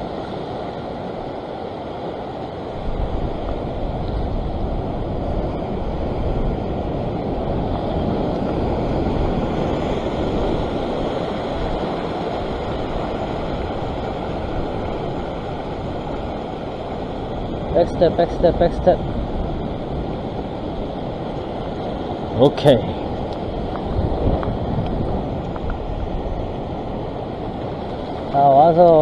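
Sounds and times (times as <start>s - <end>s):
waves washing over rocks: 0.0s - 29.0s
wind rumble on microphone: 0.0s - 29.0s.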